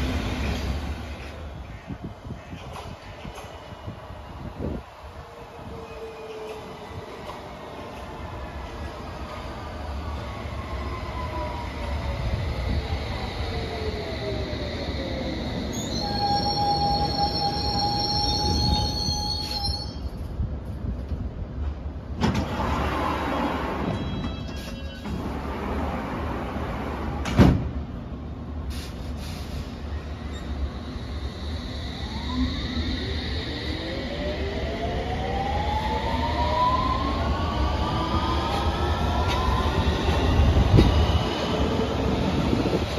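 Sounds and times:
low train rumble: 0.0s - 42.9s
high brake squeal: 15.6s - 20.2s, 23.8s - 25.2s, 28.8s - 33.4s.

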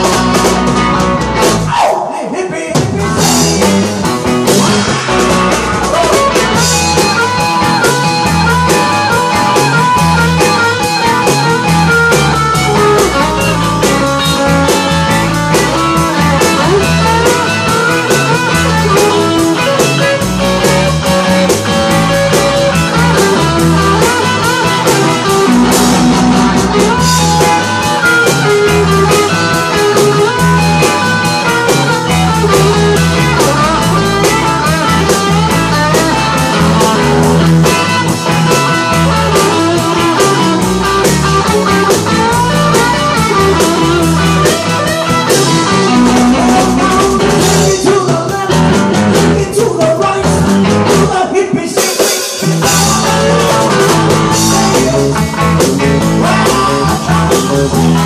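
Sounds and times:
rock and roll band playing: 0.0s - 58.0s
person singing lead vocal: 1.7s - 4.8s, 5.7s - 7.0s, 15.5s - 25.8s, 42.6s - 58.0s.

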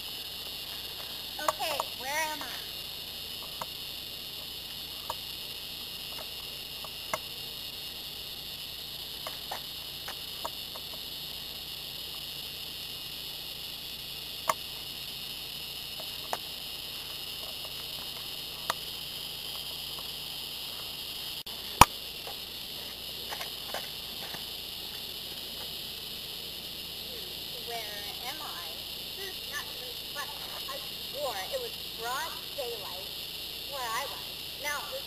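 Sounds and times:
sharp clicks: 0.0s - 2.6s, 4.7s - 5.3s, 6.1s - 7.4s, 9.2s - 11.0s, 14.4s - 14.7s, 15.9s - 20.2s, 21.7s - 22.4s
crickets chirping: 0.0s - 35.0s.

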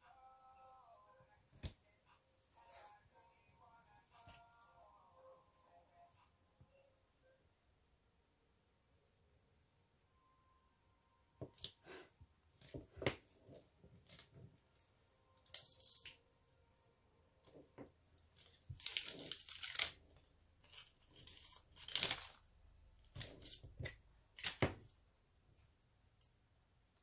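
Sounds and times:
sticky tape rustling and crinkling: 12.6s - 16.2s, 18.2s - 25.0s.

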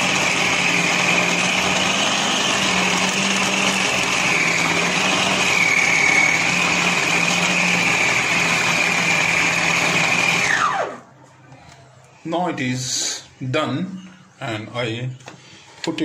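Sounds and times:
food processor motor whining: 0.0s - 11.0s.

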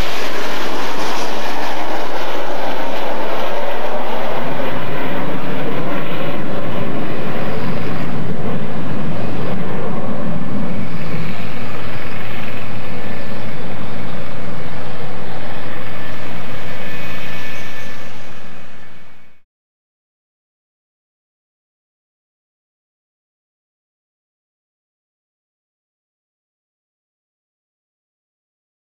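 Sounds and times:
jet engine roar: 0.0s - 19.4s
thin high whine: 0.0s - 19.4s.

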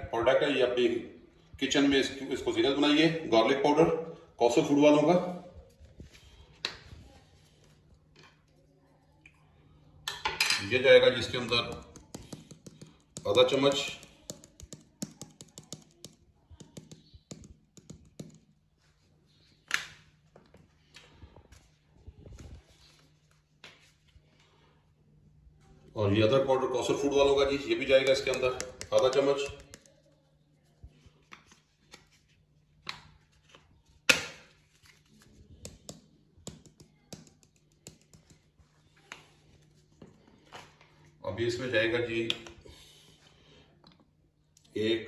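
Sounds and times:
spoon clicking and tapping: 11.4s - 18.3s.

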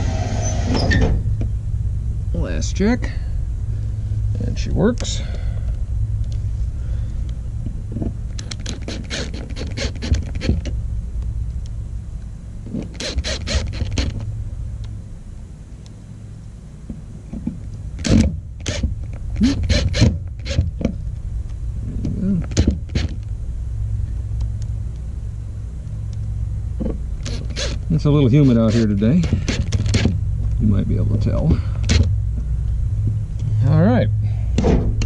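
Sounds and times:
steady low rumble: 0.0s - 35.0s
impact driver hammering: 8.6s - 10.7s, 12.8s - 14.2s, 18.0s - 20.7s, 22.5s - 23.2s, 27.2s - 27.8s, 28.4s - 30.2s.

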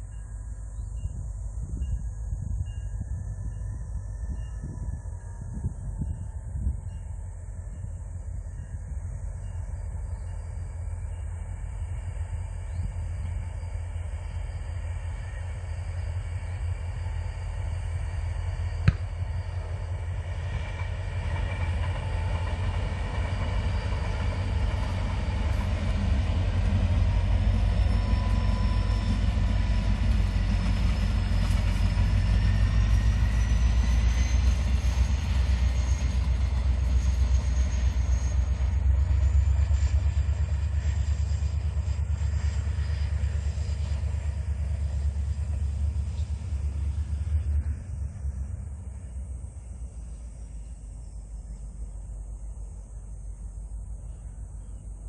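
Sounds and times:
train rolling past rumbling: 0.0s - 55.0s.

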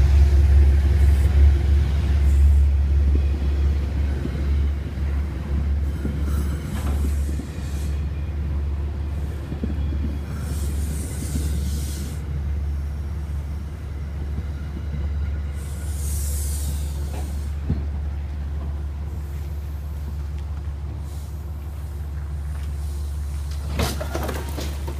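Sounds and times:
train rolling with low rumble: 0.0s - 24.9s
air hiss: 5.9s - 8.1s, 10.3s - 12.3s, 15.5s - 17.7s.

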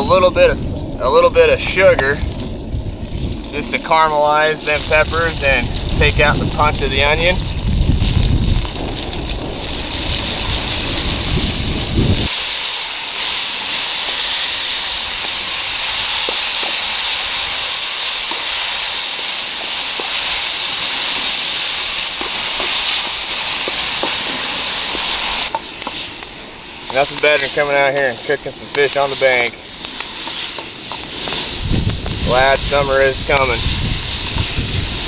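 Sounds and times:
wind rumble on microphone: 0.0s - 12.3s, 31.2s - 35.0s
vegetables sizzling in oil: 1.8s - 35.0s.

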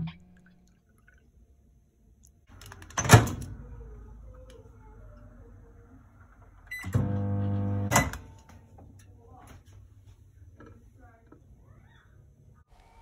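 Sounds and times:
microwave beeps: 6.7s - 8.3s
microwave humming: 6.7s - 8.4s.

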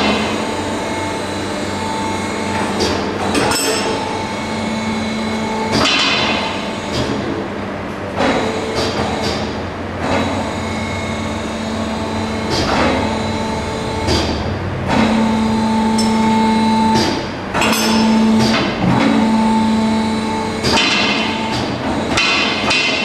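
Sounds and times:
motor hum: 0.0s - 22.8s
steady machinery noise: 0.0s - 23.0s
metal clanks and knocks: 17.0s - 19.2s, 20.6s - 23.0s.

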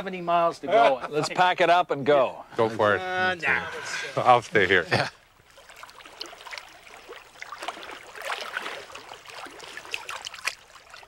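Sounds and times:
water gurgling and splashing: 3.7s - 11.0s
water drips: 4.9s - 11.0s.

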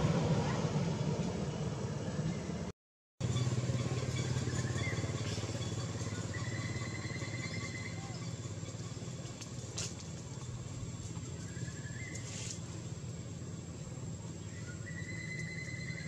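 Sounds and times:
low engine hum: 0.0s - 16.0s
brief hiss: 12.2s - 12.7s.

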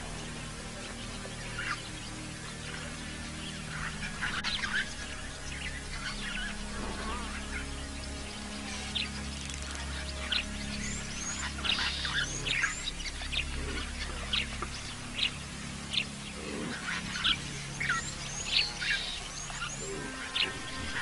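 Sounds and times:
low steady hum: 0.0s - 21.0s
wild birds chirping: 0.0s - 21.0s.

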